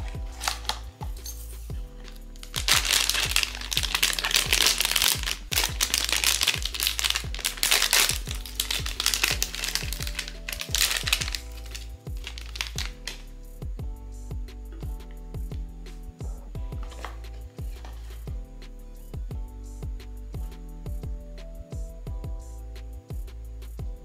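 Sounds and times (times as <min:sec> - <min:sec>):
packaging crinkling: 0:00.0 - 0:00.8, 0:02.1 - 0:13.2
background music with beat: 0:00.0 - 0:24.0.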